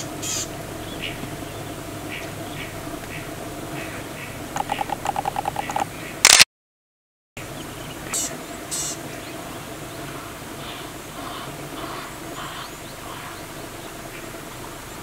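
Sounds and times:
faint outdoor background: 0.0s - 6.5s, 7.4s - 15.0s
animal chattering call: 4.2s - 5.9s.

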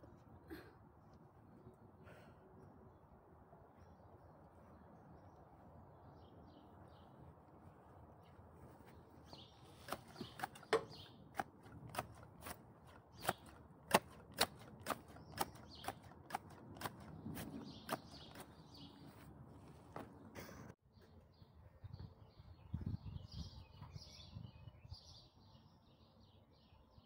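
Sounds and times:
grass shears snipping: 9.6s - 18.7s.

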